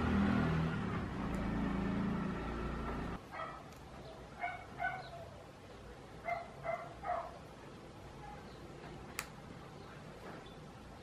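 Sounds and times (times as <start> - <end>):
small dog yipping: 4.4 - 5.3.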